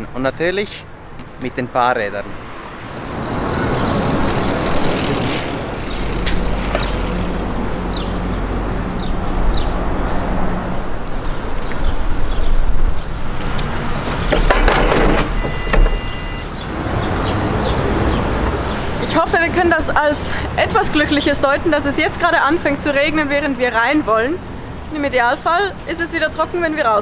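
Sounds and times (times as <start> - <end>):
traffic passing: 0.0 - 27.0
two-tone electronic beep: 15.3 - 16.5.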